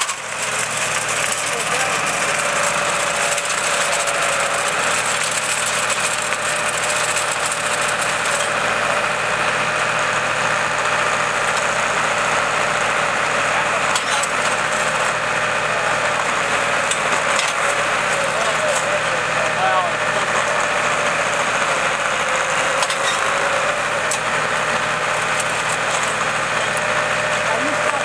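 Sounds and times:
auger boring into ground: 0.0s - 28.0s
tractor engine running: 0.0s - 28.0s.

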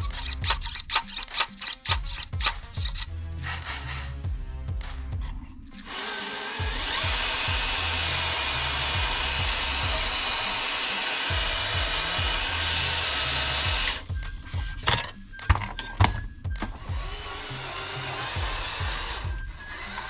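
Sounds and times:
electric motor whining: 5.8s - 20.0s.

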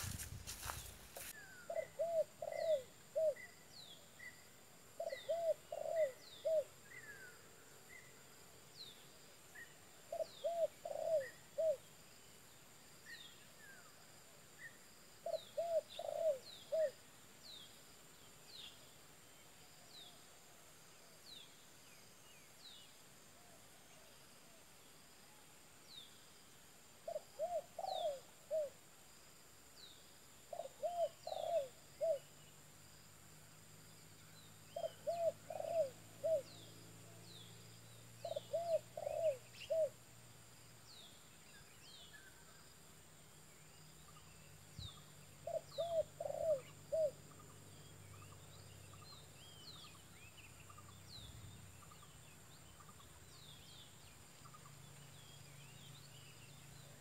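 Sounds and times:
small birds chirping: 0.0s - 14.0s, 34.0s - 40.0s, 40.8s - 57.0s
dove cooing: 1.6s - 3.5s, 5.0s - 7.4s, 10.0s - 11.8s, 15.2s - 17.0s, 27.0s - 28.8s, 30.5s - 32.3s, 34.7s - 36.6s, 38.2s - 40.0s, 45.4s - 47.2s.

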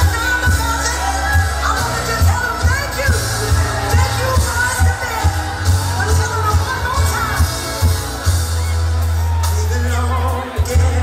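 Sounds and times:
dance-pop music through a pa: 9.3s - 11.0s.

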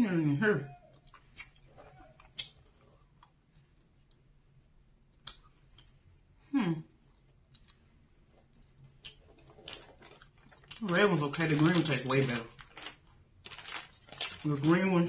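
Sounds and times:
soft clicks of eating candy: 0.9s - 4.3s, 5.1s - 6.1s, 7.1s - 14.9s.

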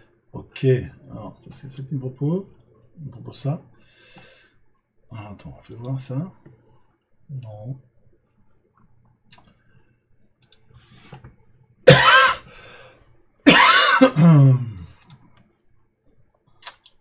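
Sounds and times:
mouse clicks: 10.3s - 10.7s
man coughing: 11.9s - 12.5s, 13.5s - 14.9s
throat clearing: 13.5s - 14.9s.

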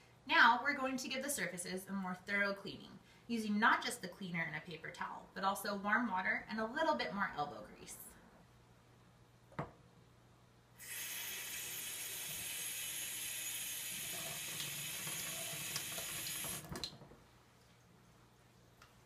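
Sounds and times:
water running into steel sink: 10.8s - 17.0s.

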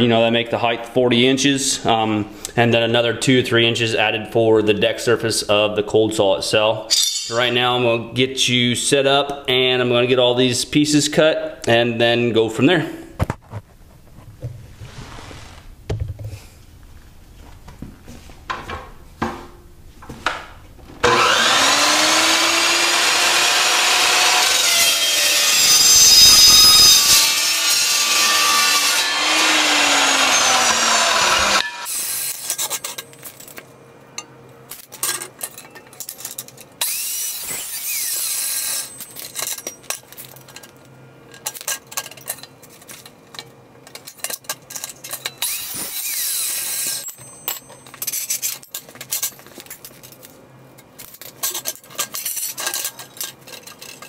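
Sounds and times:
saw blade cutting steel tubing: 6.9s - 7.4s, 21.0s - 33.0s, 36.8s - 39.8s, 45.2s - 48.6s
cold saw whining: 21.0s - 32.6s, 36.8s - 39.2s, 45.4s - 47.2s
steel tubing clinking and clanking: 34.2s - 36.7s, 38.6s - 45.6s, 46.6s - 54.0s.

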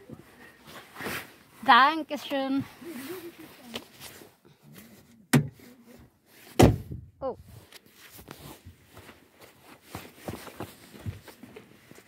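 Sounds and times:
footsteps in snow: 8.0s - 12.0s.

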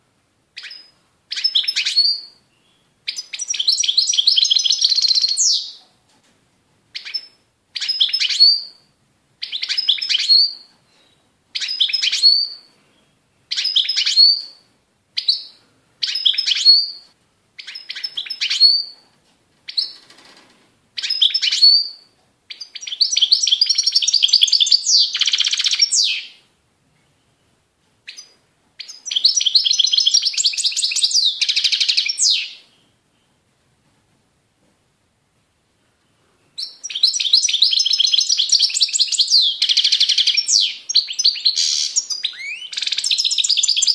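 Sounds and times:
goldfinch twittering song: 21.0s - 26.4s, 36.6s - 43.9s.

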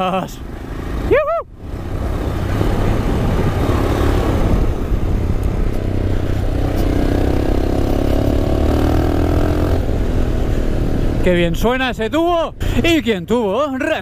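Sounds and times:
motorcycle engine under throttle: 1.7s - 11.3s.

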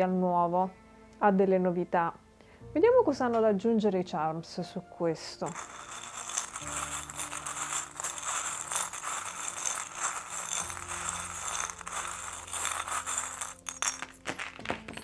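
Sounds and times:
charms clattering onto cards: 5.4s - 15.0s
metal charms jingling in a bowl: 5.4s - 15.0s.

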